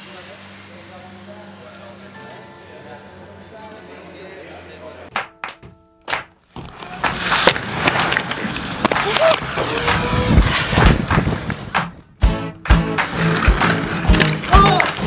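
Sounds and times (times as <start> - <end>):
skate wheels rolling on concrete: 6.6 - 12.0, 12.8 - 15.0.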